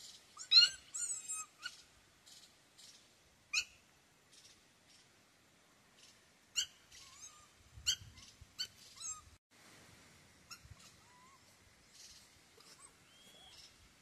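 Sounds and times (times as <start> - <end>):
high-pitched animal squeaks: 0.4 - 1.8, 6.6 - 9.3, 10.5 - 11.4, 12.6 - 13.7
faint gliding whistles: 12.0 - 13.8.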